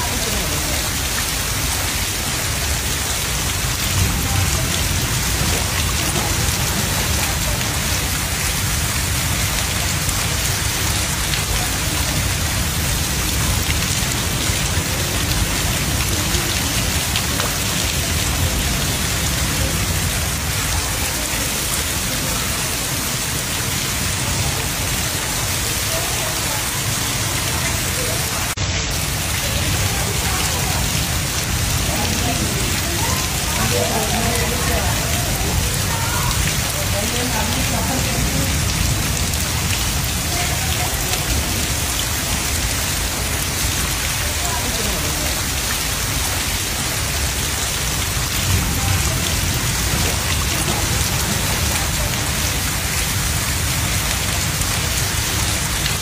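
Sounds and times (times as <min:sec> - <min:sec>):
heavy rain on floodwater: 0:00.0 - 0:56.0.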